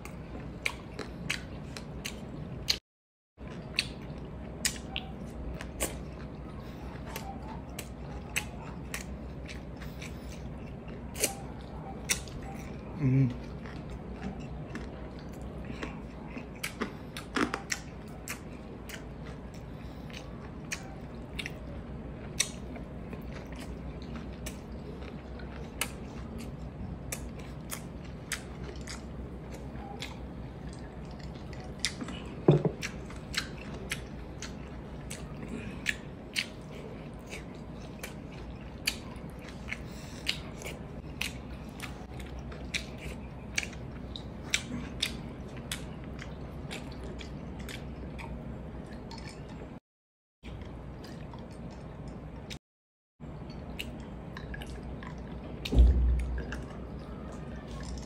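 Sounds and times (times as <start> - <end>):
person chewing with mouth clicks: 0.0 - 2.8, 3.4 - 49.8, 53.5 - 58.0
loud knock: 55.7 - 56.6.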